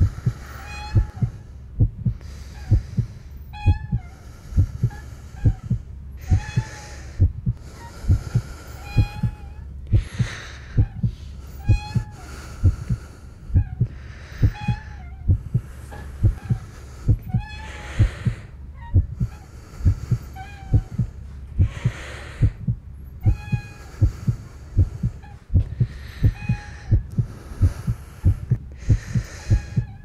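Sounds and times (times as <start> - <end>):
heartbeat double thumps: 0.0 - 30.0.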